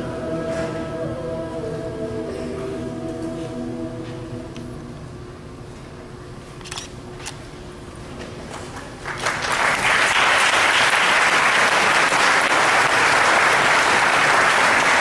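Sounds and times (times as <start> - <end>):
audience applauding: 8.8 - 15.0.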